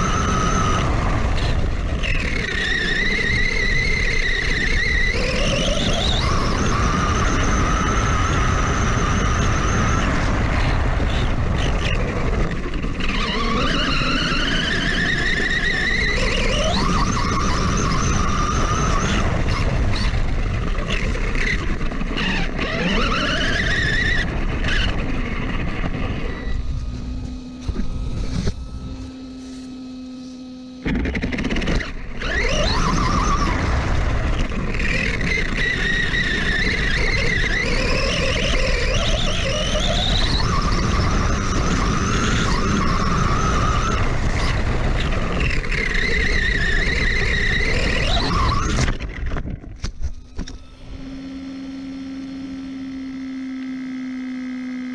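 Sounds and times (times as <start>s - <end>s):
electric motor whining: 0.0s - 54.9s
wind rush: 23.6s - 29.8s.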